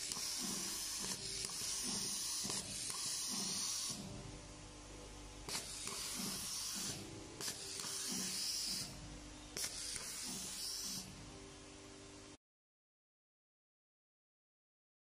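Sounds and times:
air hissing: 0.0 - 4.2, 5.5 - 9.0, 9.6 - 11.2.

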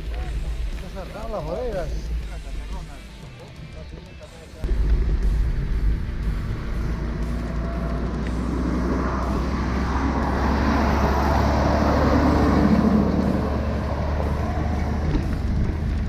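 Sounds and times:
steady low traffic rumble: 0.0 - 16.0
vehicle passing close by: 4.9 - 16.0.

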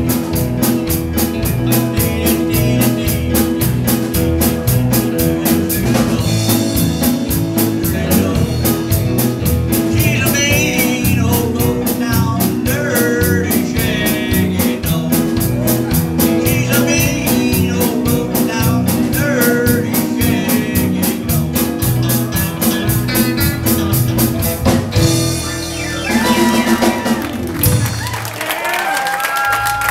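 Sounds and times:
keyboard: 0.0 - 28.3
drum kit with fast hi-hat: 0.0 - 28.4
electric guitar: 0.0 - 28.7
man singing: 1.2 - 23.8.

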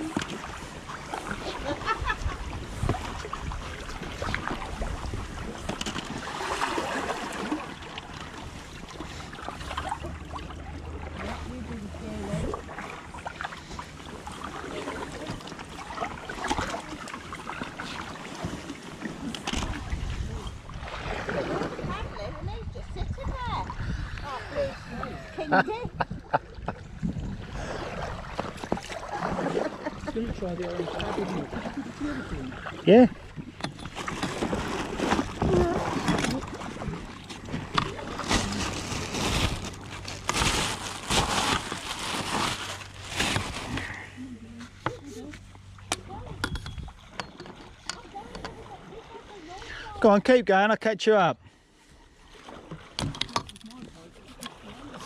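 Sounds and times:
wind rumble on microphone: 0.0 - 5.8, 19.5 - 30.5, 46.0 - 47.1
paddle splashes and drips: 0.0 - 22.6, 26.3 - 44.0, 51.6 - 55.0.

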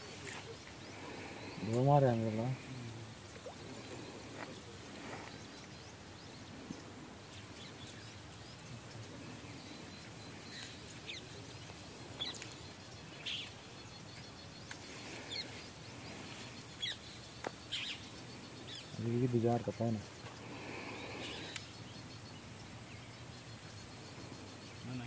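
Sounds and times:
faint background hiss: 0.0 - 25.0.

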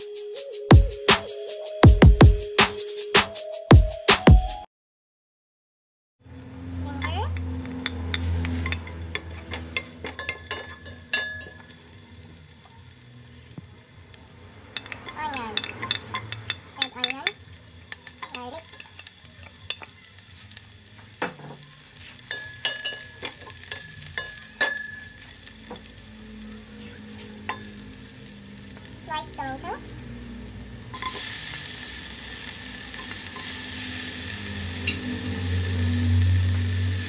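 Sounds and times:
food sizzling in hot oil: 7.0 - 37.0
wooden spatula scraping a pot: 7.3 - 11.7.

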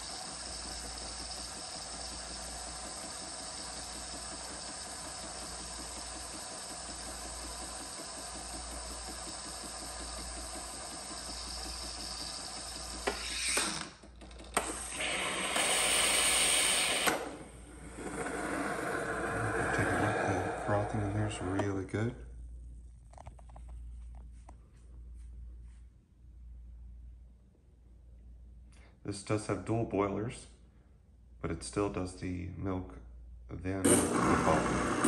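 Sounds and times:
espresso machine frothing milk: 0.0 - 21.7, 33.9 - 35.0.

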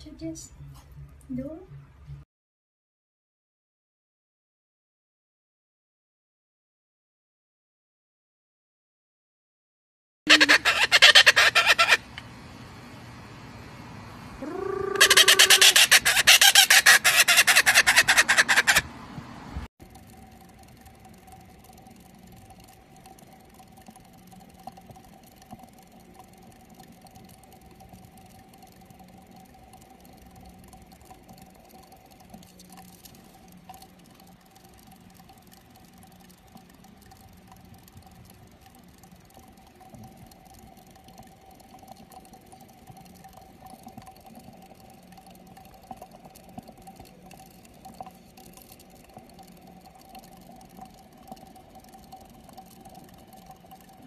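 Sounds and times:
exercise wheel whirring: 14.3 - 54.0
light ticks and rattles: 19.8 - 54.0.

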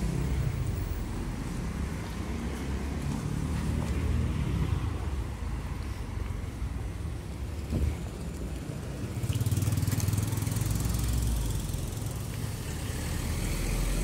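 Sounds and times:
street traffic: 0.0 - 14.0
car passing close by: 12.3 - 14.0.

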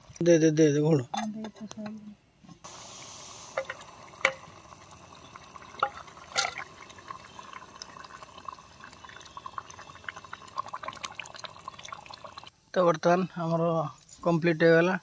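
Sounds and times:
curry bubbling and popping: 3.5 - 12.5.

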